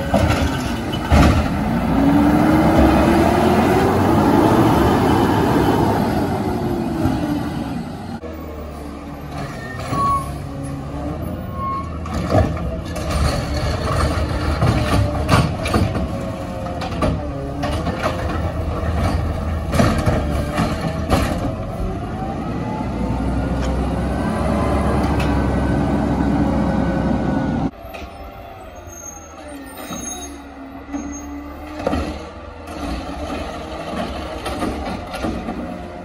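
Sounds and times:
clanks and knocks: 0.0s - 1.6s, 12.0s - 21.6s, 31.8s - 35.8s
truck engine: 0.0s - 36.0s.

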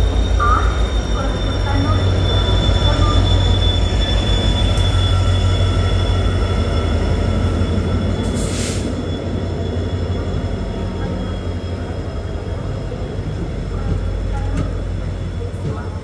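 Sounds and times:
wheel or brake squeal: 0.0s - 12.7s
diesel locomotive engine rumbling: 0.0s - 16.0s.

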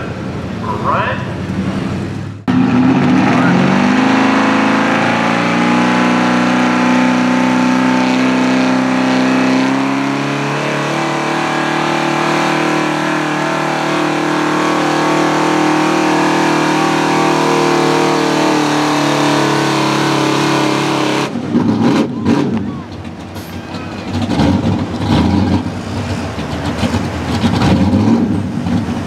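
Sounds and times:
truck engine at high revs: 0.0s - 29.0s.

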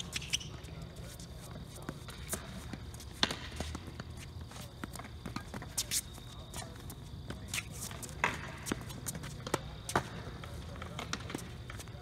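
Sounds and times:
shoes squeaking on court: 0.0s - 12.0s
tennis ball bouncing: 2.7s - 4.2s.

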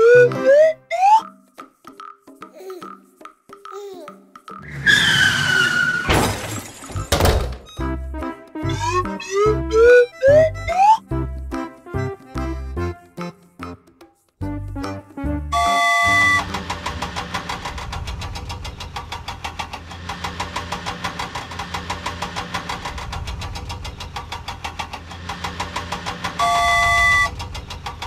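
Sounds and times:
toy horn blast: 15.5s - 16.6s, 26.4s - 27.3s
fast even engine chug: 15.6s - 28.0s.

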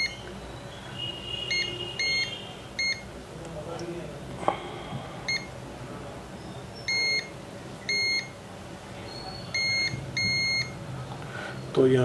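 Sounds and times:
multimeter short beeps: 0.0s - 0.2s, 1.5s - 3.1s, 5.3s - 5.5s, 6.8s - 7.3s, 7.9s - 8.4s, 9.2s - 10.8s.

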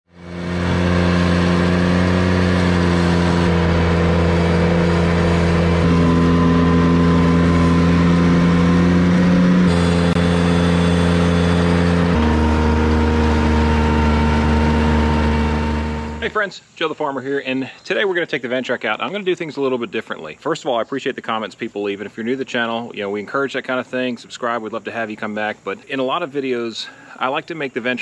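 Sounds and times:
tractor engine running under load: 0.1s - 16.4s
mower deck cutting grass: 0.1s - 16.5s.

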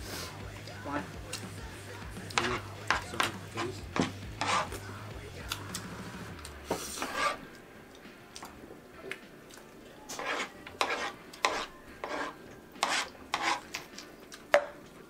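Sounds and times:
forks scraping metal trays: 2.3s - 4.8s, 6.7s - 7.5s, 10.1s - 13.9s.

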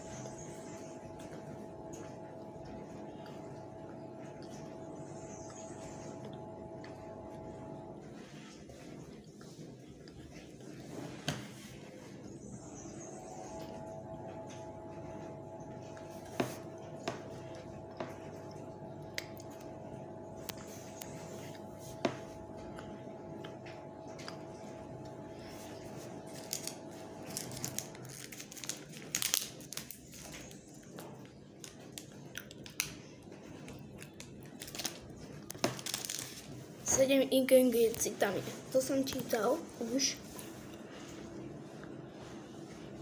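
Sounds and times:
faint steady hum: 0.0s - 43.0s
wrapper crinkling and rustling: 26.3s - 30.6s, 33.7s - 37.0s.

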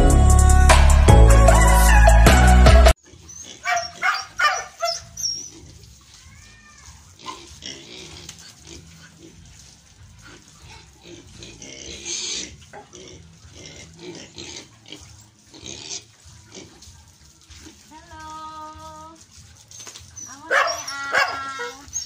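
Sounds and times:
piglets grunting and squealing: 3.0s - 17.9s.

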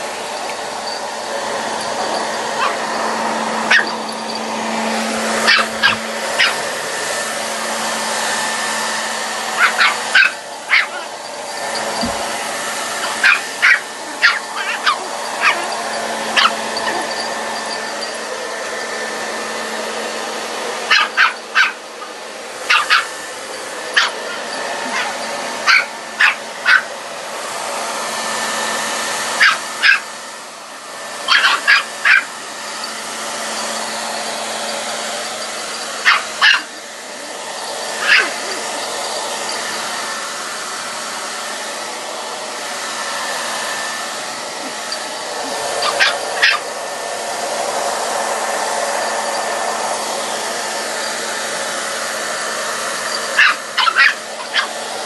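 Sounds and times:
hair dryer blowing: 0.0s - 55.0s
puppy barking: 1.9s - 4.3s, 5.2s - 6.8s, 9.4s - 18.2s, 20.8s - 23.2s, 23.8s - 27.0s, 29.3s - 30.1s, 31.2s - 32.4s, 35.6s - 39.6s, 44.6s - 46.8s, 53.1s - 55.0s.

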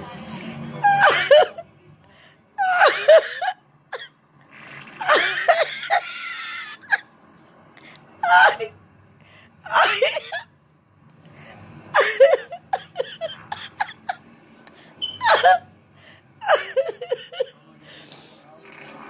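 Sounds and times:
person laughing hard: 12.0s - 14.2s, 16.4s - 17.5s.

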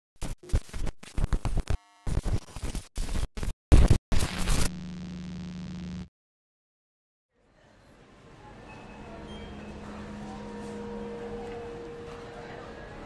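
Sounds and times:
glitchy static bursts: 0.2s - 6.1s.

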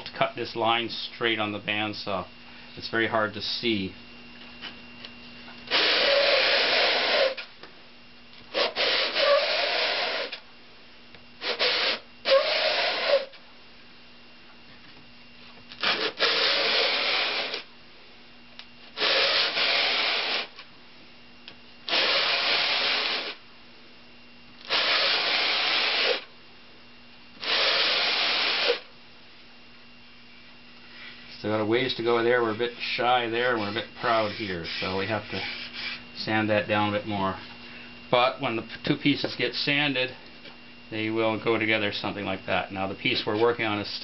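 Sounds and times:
wood sanding on sandpaper: 33.6s - 36.0s.

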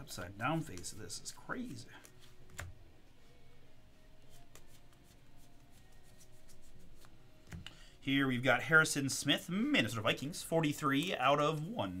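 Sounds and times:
trading cards rustling: 0.5s - 2.7s.

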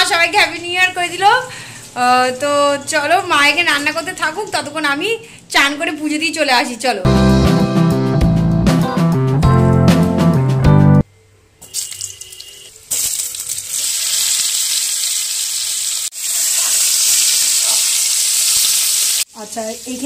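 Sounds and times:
background music: 7.0s - 11.0s
potatoes sizzling in hot oil: 12.8s - 20.0s.

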